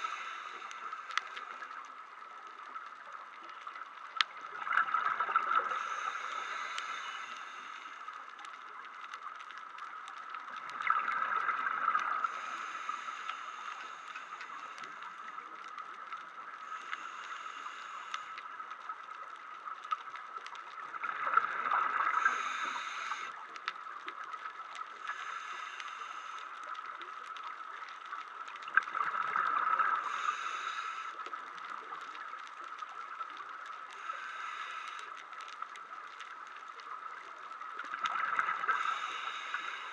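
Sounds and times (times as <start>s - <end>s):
regulator breathing hisses: 0.0s - 1.9s, 5.6s - 8.4s, 12.2s - 15.6s, 16.6s - 18.6s, 22.0s - 23.4s, 25.0s - 26.8s, 29.9s - 31.5s, 33.9s - 35.4s, 38.5s - 39.9s
exhaled bubbles gurgling underwater: 0.0s - 39.9s
steady faint tone: 0.0s - 39.9s.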